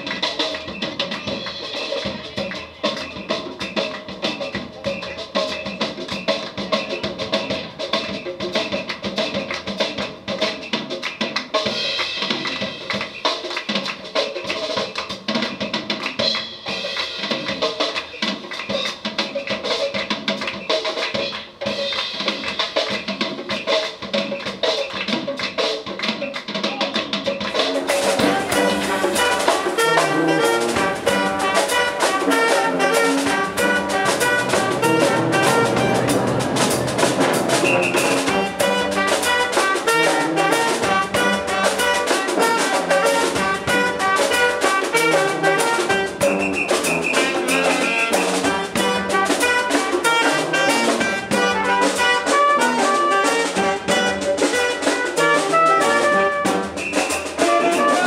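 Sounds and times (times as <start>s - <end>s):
drum kit beat: 0.0s - 58.0s
tuba: 0.0s - 58.0s
trombone: 27.4s - 58.0s
trumpet: 27.6s - 58.0s
saxophone: 28.0s - 58.0s.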